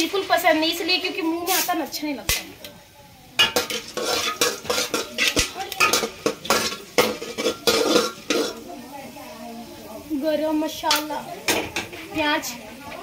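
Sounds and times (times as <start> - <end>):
metal spatula scraping a pot: 3.4 - 8.8.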